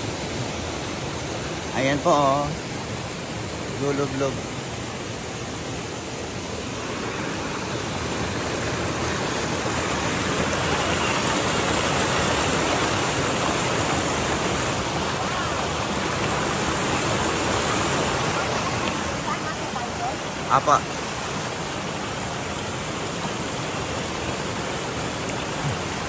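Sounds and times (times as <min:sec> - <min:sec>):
water rushing over rocks: 0:00.0 - 0:26.0.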